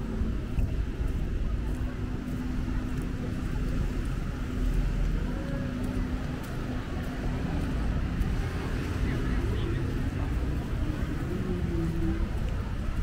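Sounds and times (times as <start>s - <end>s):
vehicle engines running: 0.0s - 13.0s.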